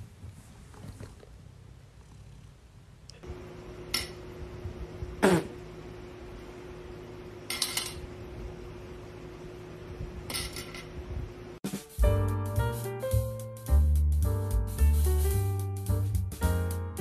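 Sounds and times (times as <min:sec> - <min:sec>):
metal rings clinking on table: 0:07.5 - 0:08.0, 0:10.3 - 0:10.9.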